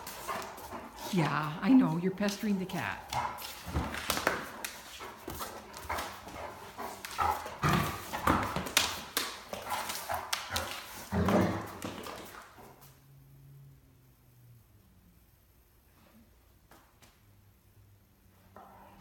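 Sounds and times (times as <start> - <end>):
dog paws clattering on tile: 0.0 - 13.0.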